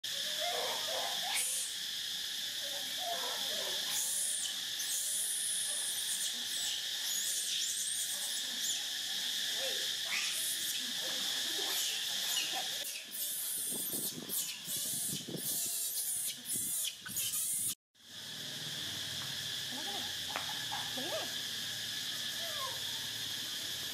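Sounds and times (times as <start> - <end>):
insects chirring: 0.0 - 23.9
short bursts of hiss: 11.7 - 23.9.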